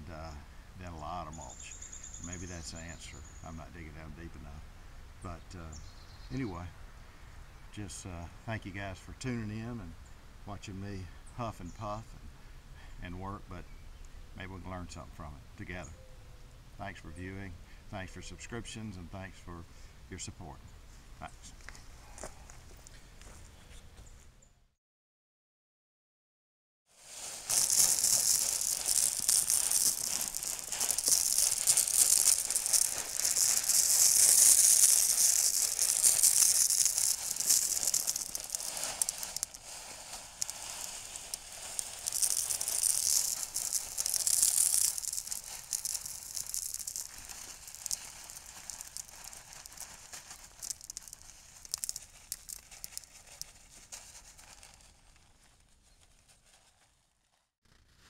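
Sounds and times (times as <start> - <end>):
gravel being poured: 27.0 - 55.2.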